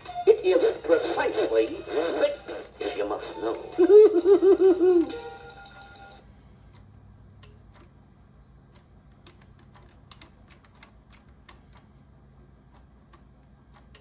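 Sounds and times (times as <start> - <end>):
clock movement clicking: 8.7 - 12.0, 12.7 - 14.0.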